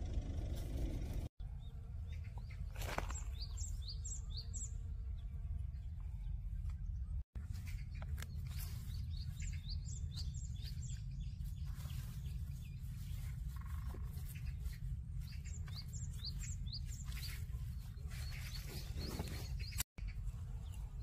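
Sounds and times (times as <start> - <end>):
low rumble: 0.0 - 1.6
small bird chirping: 5.9 - 21.0.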